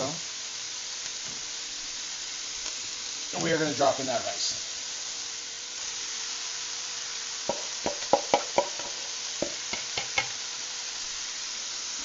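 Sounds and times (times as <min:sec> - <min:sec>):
food sizzling in a wok: 0:00.0 - 0:12.0
sharp knocks in a pan: 0:07.5 - 0:10.4.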